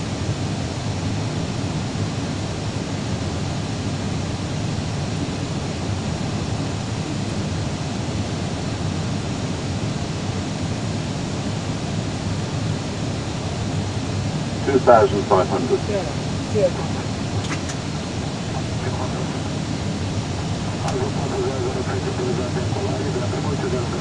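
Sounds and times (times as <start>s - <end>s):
airflow and jet engines rushing: 0.0s - 24.0s
low rumble: 14.6s - 24.0s.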